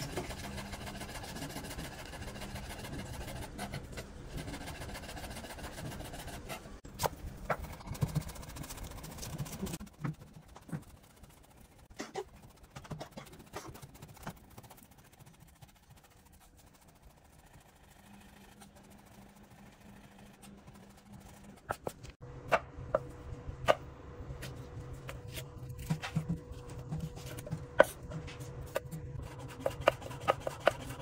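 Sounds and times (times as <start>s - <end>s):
knife chopping on cutting board: 24.4s - 31.0s.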